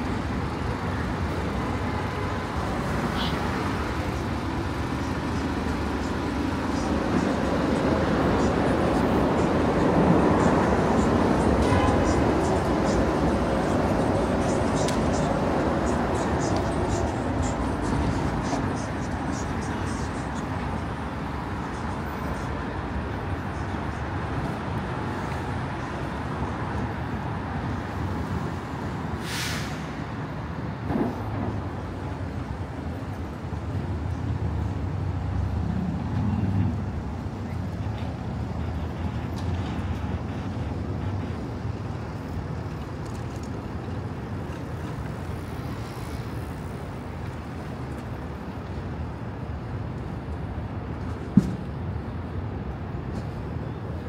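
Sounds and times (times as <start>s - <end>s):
city street traffic: 0.0s - 54.0s
heavy vehicle engine rumble: 0.0s - 54.0s
short sharp hiss: 29.2s - 30.0s.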